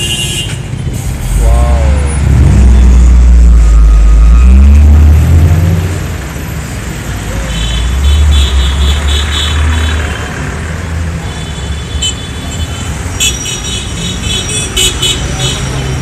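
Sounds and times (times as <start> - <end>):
heavy vehicle engine rumbling: 0.4 - 11.2.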